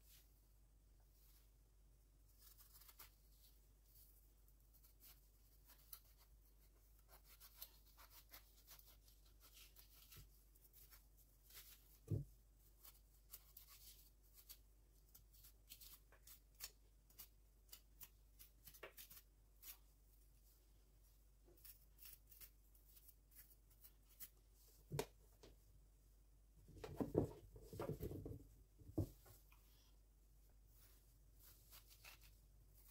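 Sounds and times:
knife scraping zucchini seeds: 21.6s - 24.3s, 31.7s - 32.9s.

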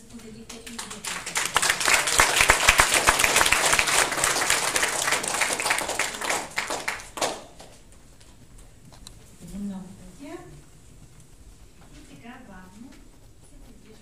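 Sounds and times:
audience applauding: 0.6s - 7.8s.

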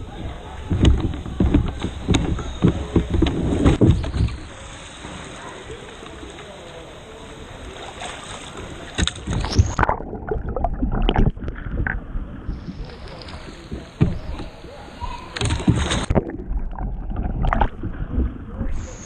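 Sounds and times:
paddle sweeps: 0.6s - 9.9s, 12.4s - 16.6s
water splashing and gurgling: 0.6s - 14.7s, 15.3s - 19.0s.

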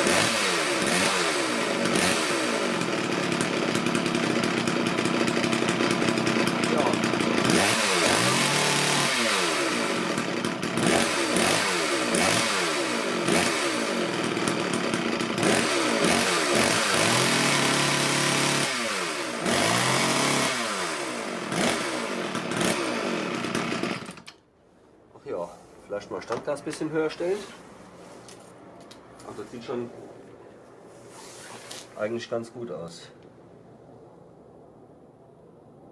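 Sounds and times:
chainsaw engine revving: 0.0s - 24.4s.

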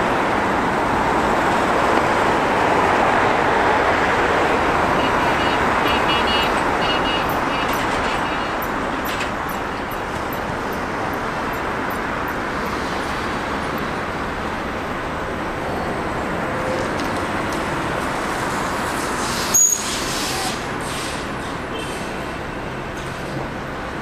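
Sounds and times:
road traffic noise: 0.0s - 24.0s.

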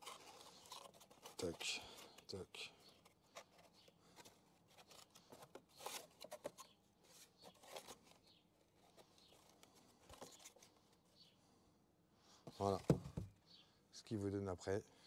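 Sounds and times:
cardboard rustling and scraping: 0.0s - 11.2s, 12.5s - 13.4s
cardboard knocking on wooden crate: 12.5s - 13.4s.

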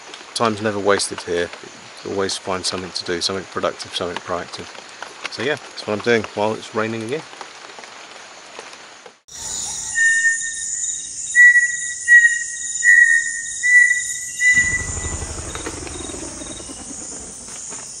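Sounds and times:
high insect drone: 9.3s - 18.0s
whistled bird-like notes: 9.3s - 18.0s
deep rumble: 14.4s - 18.0s.

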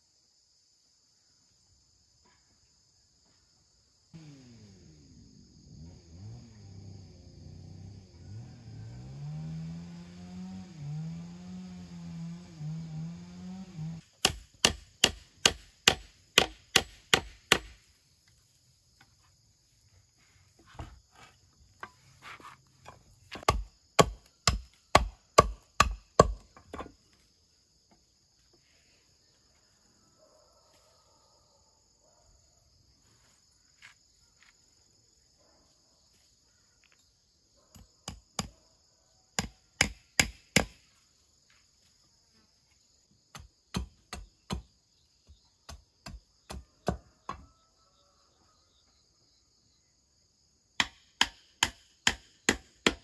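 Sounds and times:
insects buzzing: 0.0s - 31.6s, 32.3s - 52.8s
low wavering hum: 4.2s - 14.0s
machete chopping wooden stick: 12.4s - 17.8s, 23.3s - 26.9s, 39.4s - 40.8s, 43.3s - 44.7s, 50.8s - 53.0s.

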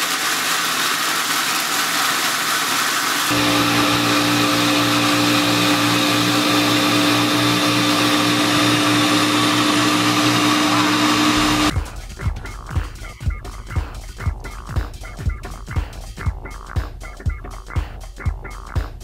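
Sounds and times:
blender grinding peanuts: 0.0s - 11.8s.

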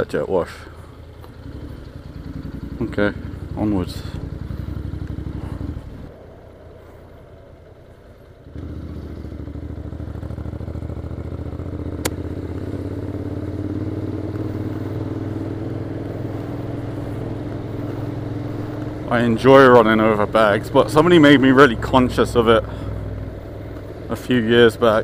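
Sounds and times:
motorcycle engine running: 0.4s - 25.0s
sharp click: 12.0s - 12.2s.

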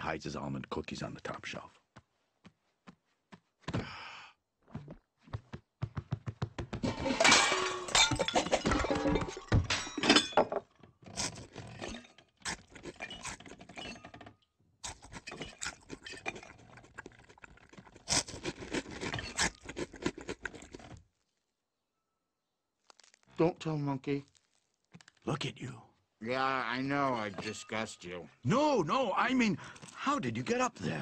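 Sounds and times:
cartoon knocks and bumps: 4.7s - 7.2s
dishes clattering and crashing: 6.8s - 10.8s, 27.0s - 28.0s.

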